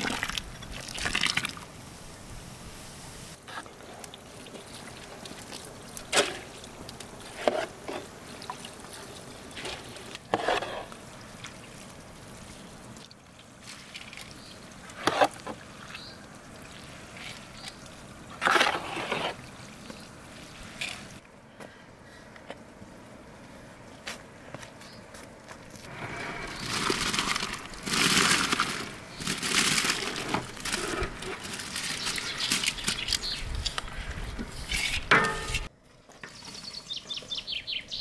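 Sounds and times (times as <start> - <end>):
water trickling and dripping: 3.8 - 10.3, 10.9 - 18.4, 19.4 - 21.2
scrape and splash: 7.2 - 11.5, 13.6 - 15.6, 16.7 - 21.2, 25.8 - 33.1, 34.4 - 35.7.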